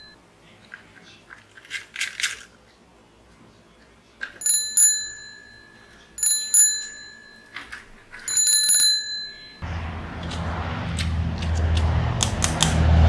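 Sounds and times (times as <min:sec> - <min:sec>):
small metal bell ringing: 0:04.4 - 0:09.6.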